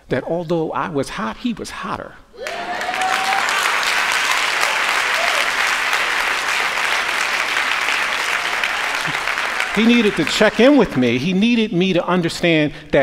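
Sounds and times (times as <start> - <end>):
congregation applauding: 2.4 - 11.4.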